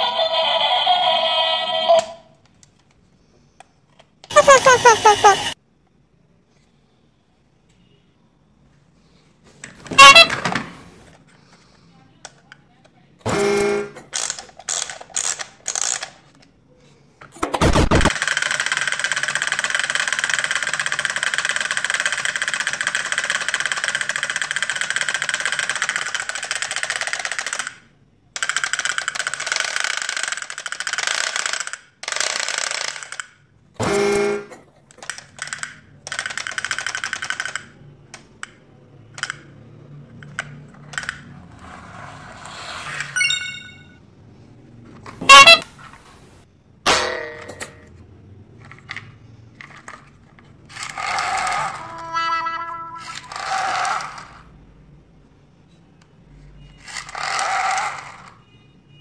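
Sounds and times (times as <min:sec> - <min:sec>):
wind-up toy drum rattling: 0:14.2 - 0:16.1, 0:18.1 - 0:27.8, 0:28.4 - 0:33.3, 0:35.0 - 0:37.7, 0:50.7 - 0:52.0, 0:52.9 - 0:54.4, 0:56.8 - 0:58.3.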